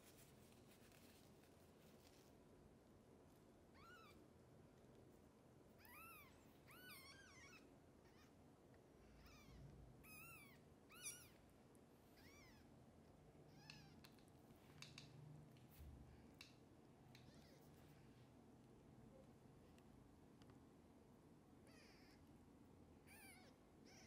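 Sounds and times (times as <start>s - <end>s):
kittens mewing: 21.6s - 22.2s, 23.0s - 24.0s.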